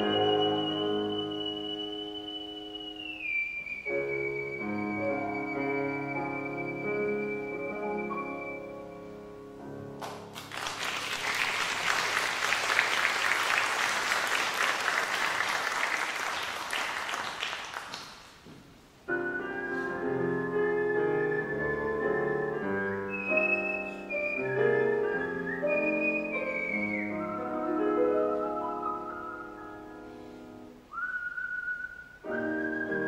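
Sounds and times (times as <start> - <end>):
whistled melody: 0.0 - 9.3, 19.1 - 30.2, 30.9 - 33.0
grand piano playing: 0.0 - 10.5, 19.0 - 30.9
audience applauding: 10.0 - 18.4.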